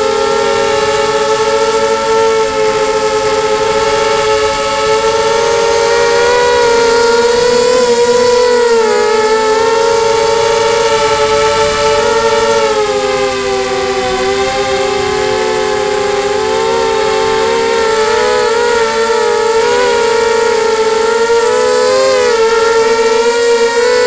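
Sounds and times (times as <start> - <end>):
quadcopter motors whining: 0.0 - 24.0.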